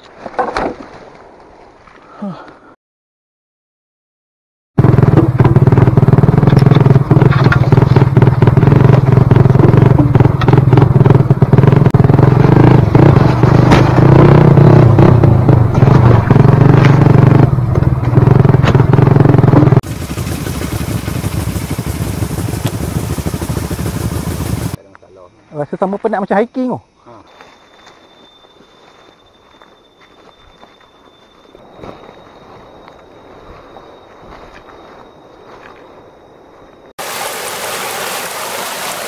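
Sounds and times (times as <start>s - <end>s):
bike knocking and rattling: 4.8s - 11.8s, 19.8s - 24.8s
dirt bike engine running: 4.8s - 24.8s.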